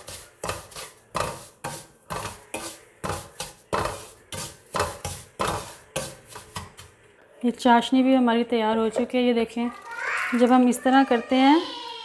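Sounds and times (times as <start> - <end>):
wooden spoon scraping metal pan: 0.0 - 6.9.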